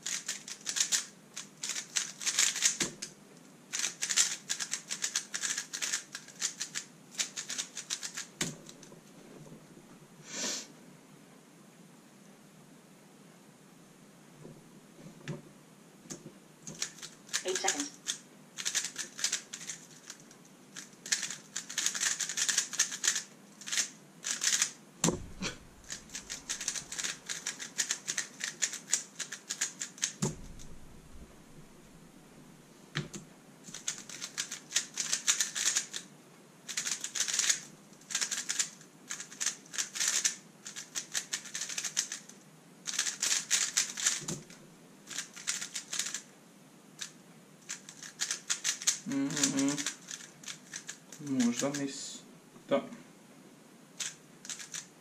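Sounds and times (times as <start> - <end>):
puzzle cube plastic clicking: 0.0 - 3.1, 3.7 - 8.8, 16.6 - 24.8, 25.4 - 30.3, 33.7 - 36.1, 36.7 - 46.2, 47.0 - 51.8, 54.0 - 54.9
dull thumps: 25.0 - 26.7, 30.2 - 31.9.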